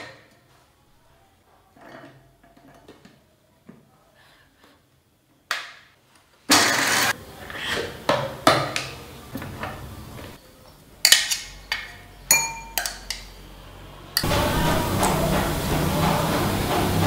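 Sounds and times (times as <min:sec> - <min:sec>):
mixer grinder running: 0:06.5 - 0:07.2, 0:14.2 - 0:17.0
lid and jar clinking: 0:11.0 - 0:13.3.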